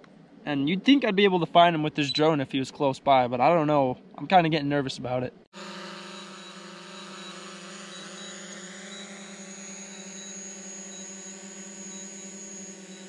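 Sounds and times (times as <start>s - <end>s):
drone propellers whining: 5.6s - 13.0s.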